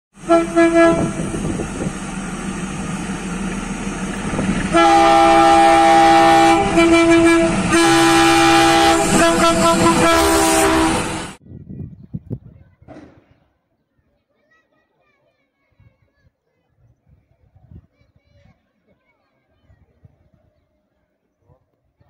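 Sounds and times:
locomotive horn blasts: 0:00.2 - 0:01.7, 0:04.4 - 0:11.4
diesel locomotive passing: 0:00.2 - 0:11.4.

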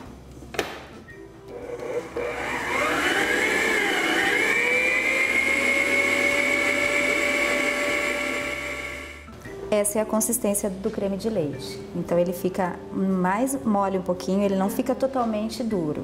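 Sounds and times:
stand mixer motor whine: 0:01.5 - 0:09.2.

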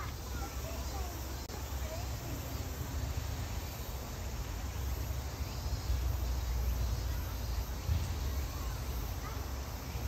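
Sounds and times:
even hiss: 0:00.0 - 0:10.0.

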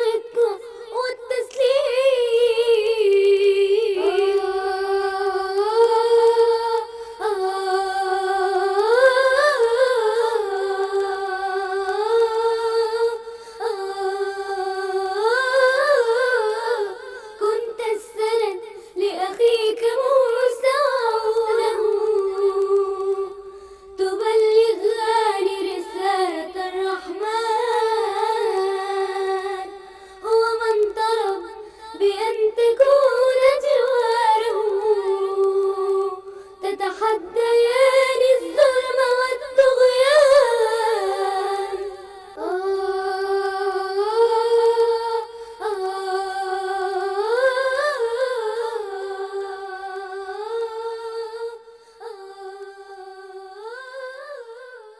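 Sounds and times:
person singing wordless melody: 0:00.0 - 0:54.9
breaths: 0:06.8 - 0:07.2, 0:13.2 - 0:13.8, 0:17.0 - 0:17.4, 0:18.6 - 0:19.0, 0:23.4 - 0:24.0, 0:29.8 - 0:30.3, 0:31.5 - 0:32.0, 0:36.2 - 0:36.7, 0:45.2 - 0:45.8, 0:51.6 - 0:52.2.

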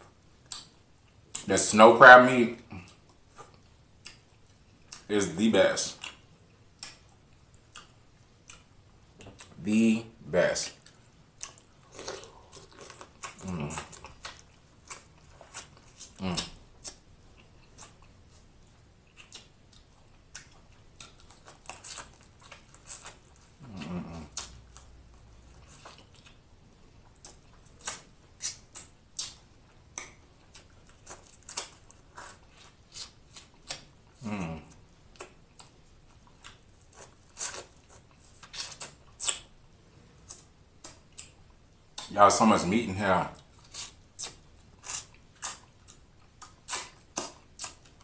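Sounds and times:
person humming with enjoyment: 0:34.2 - 0:34.8.

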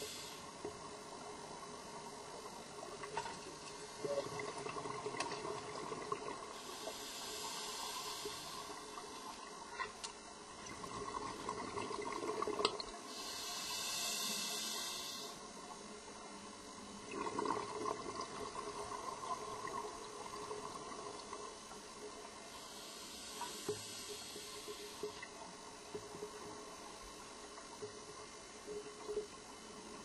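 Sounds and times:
regulator hiss: 0:00.0 - 0:00.9, 0:06.5 - 0:09.4, 0:13.0 - 0:15.6, 0:22.4 - 0:25.5
exhaled bubbles gurgling underwater: 0:00.0 - 0:15.1, 0:17.0 - 0:30.0.

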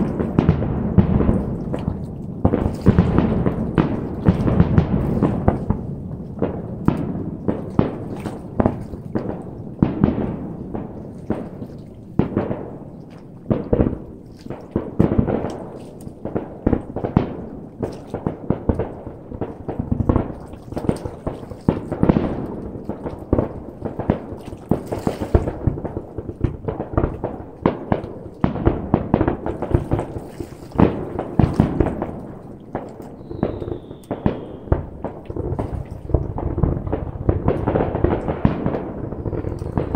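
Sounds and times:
fireworks booming and crackling: 0:00.0 - 0:39.9
falling whistle: 0:33.2 - 0:34.7.

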